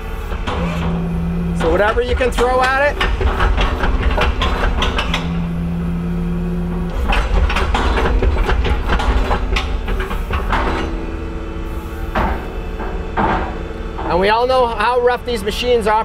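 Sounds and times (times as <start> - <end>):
loader engine rumbling: 0.0 - 16.0
steady hum: 0.0 - 16.0
metal clanks and knocks: 0.3 - 6.0, 6.7 - 11.2, 12.0 - 14.4.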